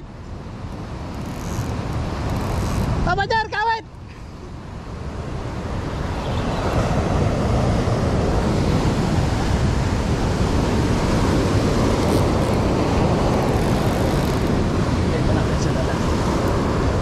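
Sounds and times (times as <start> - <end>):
sea surf breaking on rocks: 4.5 - 17.0.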